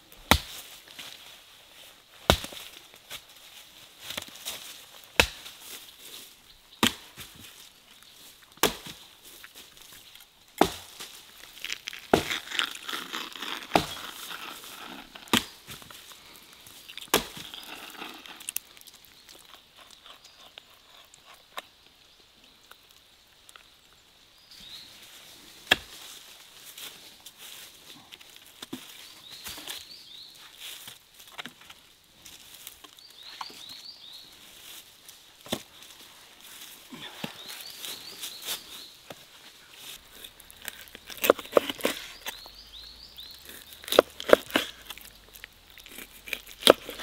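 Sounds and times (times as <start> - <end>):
axe chopping wood: 0.2 - 0.6, 2.3 - 2.7, 5.1 - 5.6, 6.8 - 7.2, 8.6 - 9.0, 10.6 - 10.9, 12.1 - 14.1, 15.2 - 15.7, 17.1 - 17.6, 25.7 - 26.0, 43.5 - 44.9, 45.9 - 47.0
rustling: 24.8 - 47.0.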